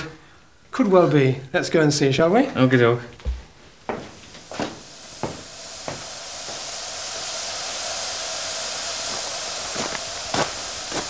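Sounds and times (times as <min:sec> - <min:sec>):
steam hissing from locomotive: 0:03.7 - 0:11.0.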